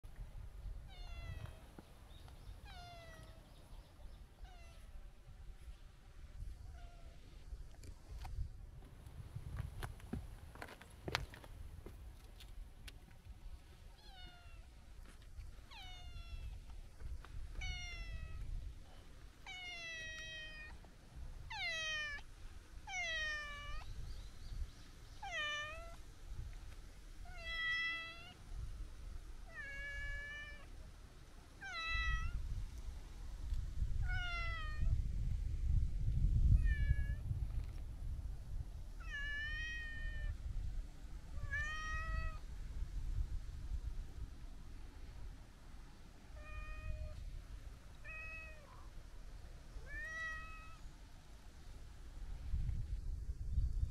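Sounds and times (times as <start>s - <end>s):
cat meowing: 41.4s - 42.4s, 49.8s - 50.8s.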